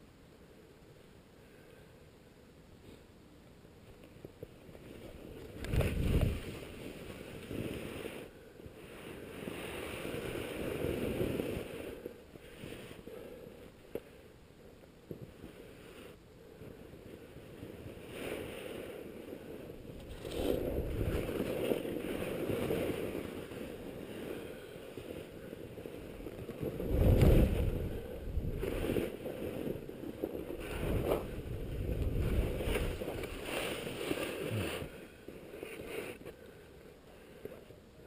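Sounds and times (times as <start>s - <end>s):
skis scraping over snow: 4.4s - 13.4s, 16.8s - 36.4s
wind buffeting microphone: 5.4s - 8.0s, 19.7s - 22.6s, 25.3s - 34.9s.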